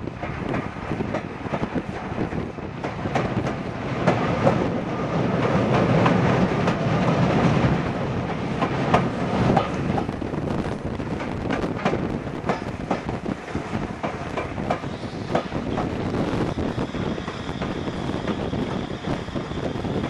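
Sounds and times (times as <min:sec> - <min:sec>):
wheels clicking over rail joints: 0:00.0 - 0:10.2, 0:10.8 - 0:16.0
train rumbling: 0:00.0 - 0:20.0.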